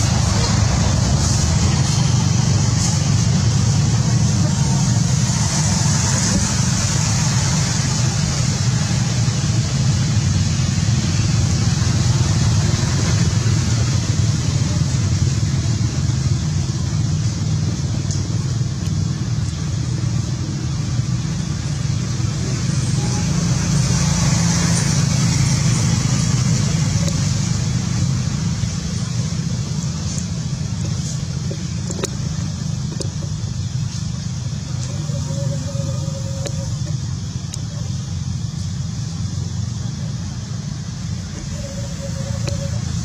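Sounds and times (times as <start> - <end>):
steady low rumble: 0.0 - 23.6
constant high hiss: 0.0 - 43.0.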